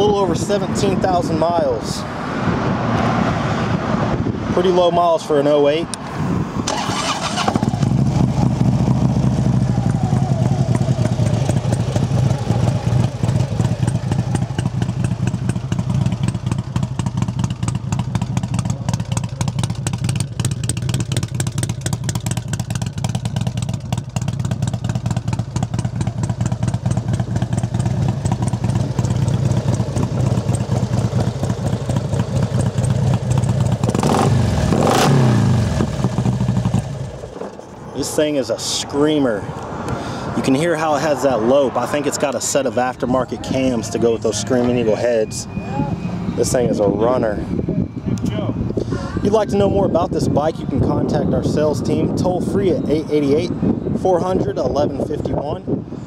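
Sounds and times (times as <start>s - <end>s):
engine revving: 6.6s - 21.8s, 31.0s - 37.2s
motorcycle engine idling: 6.7s - 37.8s.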